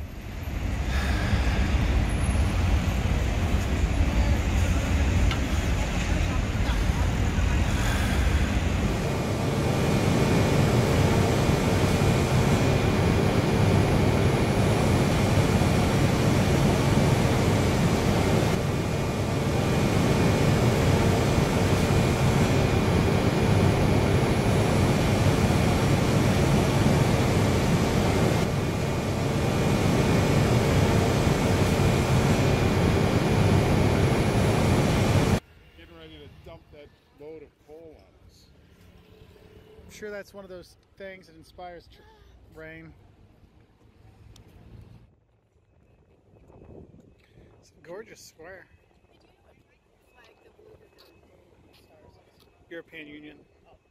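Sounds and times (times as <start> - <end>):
train equipment whirring hum: 0.0 - 41.0
street traffic: 0.0 - 46.4.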